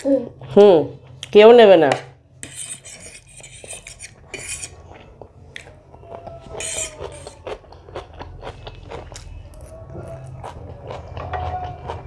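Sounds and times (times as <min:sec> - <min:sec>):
cutlery scraping on a plate: 0:02.4 - 0:05.0
chewing: 0:03.7 - 0:12.0.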